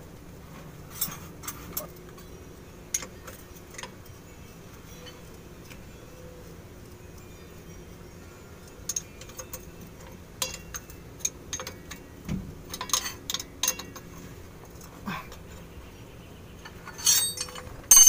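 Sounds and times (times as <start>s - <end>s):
wrench clicking on bolts: 12.7s - 14.1s.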